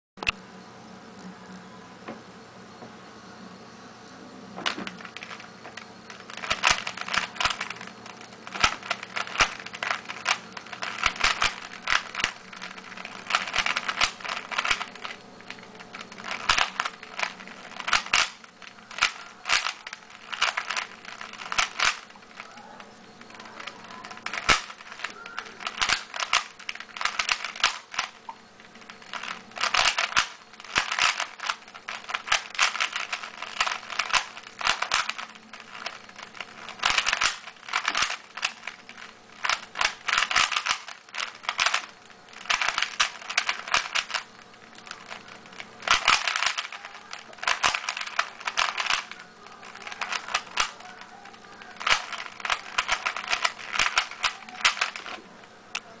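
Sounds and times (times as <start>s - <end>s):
puzzle cube clicking and clattering: 4.6s - 55.2s.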